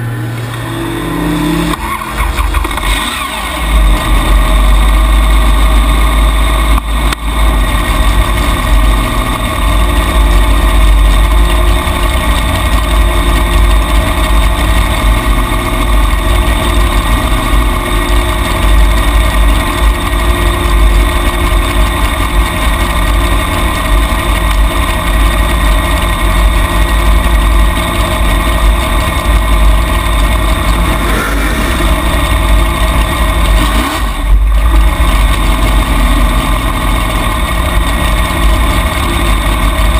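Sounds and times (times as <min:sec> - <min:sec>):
single-cylinder engine idling: 0:00.0 - 0:39.9.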